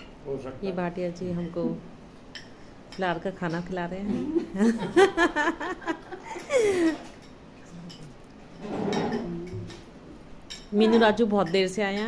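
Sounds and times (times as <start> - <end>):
person laughing: 4.6 - 7.1.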